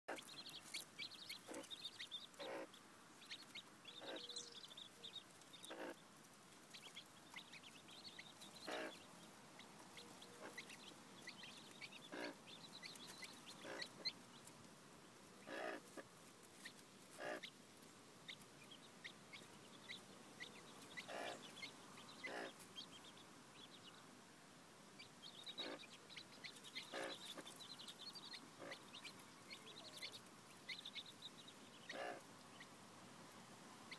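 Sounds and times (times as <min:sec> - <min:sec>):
hen clucking softly: 0:00.1 - 0:06.0, 0:06.7 - 0:14.2, 0:15.4 - 0:16.1, 0:17.1 - 0:17.5, 0:19.0 - 0:22.9, 0:25.0 - 0:32.7
chicks peeping: 0:00.1 - 0:14.7, 0:15.4 - 0:24.1, 0:24.9 - 0:33.9.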